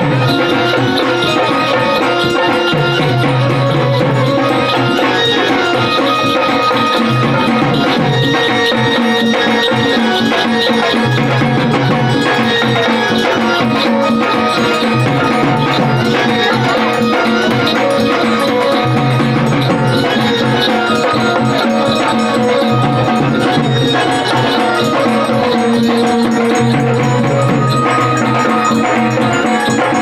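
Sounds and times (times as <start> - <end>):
drums beating steady rhythm: 0.0 - 30.0
held melodic line: 0.0 - 30.0
jingling shaker percussion: 0.0 - 30.0.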